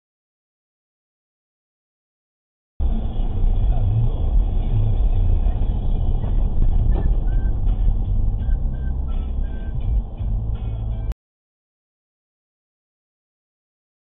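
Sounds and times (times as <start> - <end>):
vehicle engine and road rumble: 2.8 - 11.2.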